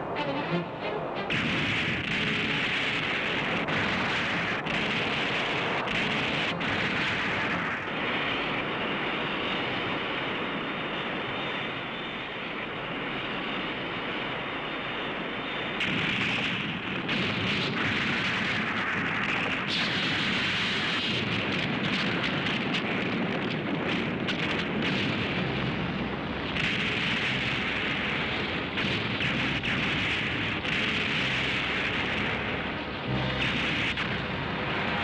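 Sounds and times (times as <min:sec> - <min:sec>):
rumbling explosion blasts: 0:00.0 - 0:10.7, 0:15.8 - 0:35.0.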